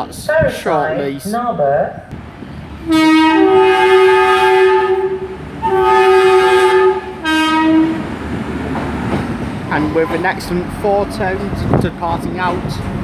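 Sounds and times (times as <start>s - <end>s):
two-tone train horn blasts: 2.8s - 8.1s.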